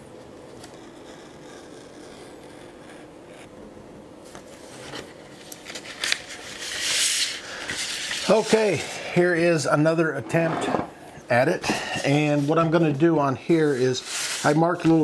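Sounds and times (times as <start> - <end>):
paper rustling: 4.6 - 9.0.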